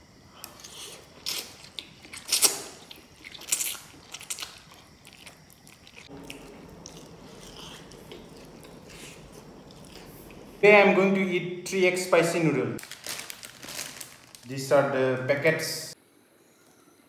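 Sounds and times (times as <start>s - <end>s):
chewing: 0.4s - 10.6s.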